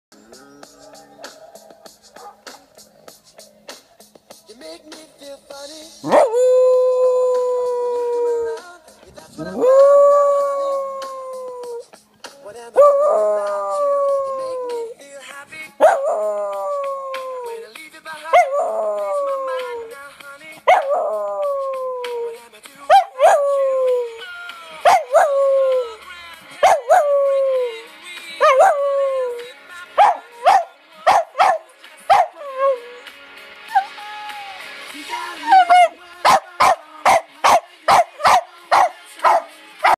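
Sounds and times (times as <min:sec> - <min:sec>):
dog howling and yelping: 0:06.0 - 0:08.6, 0:09.4 - 0:11.8, 0:12.8 - 0:15.0, 0:15.8 - 0:17.7, 0:18.3 - 0:20.0, 0:20.7 - 0:24.3, 0:24.9 - 0:26.0, 0:26.6 - 0:33.1, 0:33.7 - 0:34.0, 0:35.2 - 0:39.5.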